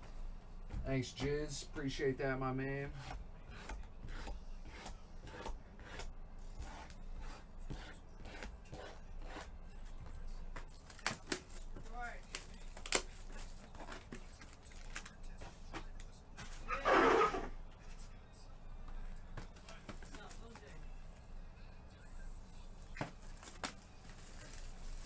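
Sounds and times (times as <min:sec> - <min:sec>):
cardboard and wrapper tearing: 0:10.8 - 0:15.2, 0:23.2 - 0:25.0.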